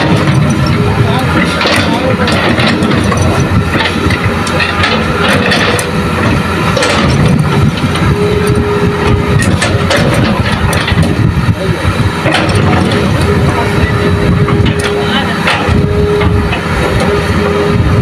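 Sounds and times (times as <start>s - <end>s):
excavator diesel engine under load: 0.0s - 18.0s
steady mid-pitched tone: 0.0s - 18.0s.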